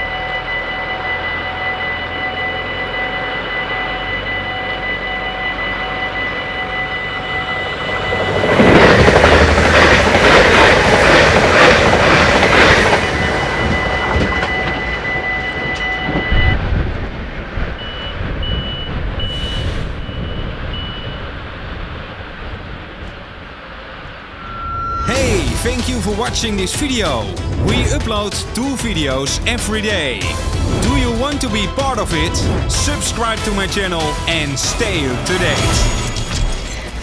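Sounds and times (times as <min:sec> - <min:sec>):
level crossing bell ringing: 0:00.0 - 0:08.9, 0:12.5 - 0:16.6
train passing: 0:00.0 - 0:37.0
short high beeps: 0:24.4 - 0:26.2.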